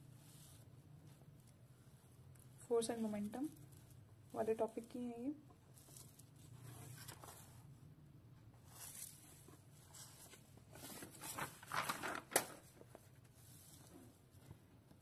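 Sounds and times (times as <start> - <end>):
notebook page turning: 6.6 - 7.6, 9.9 - 14.6
page flapping: 10.1 - 13.1.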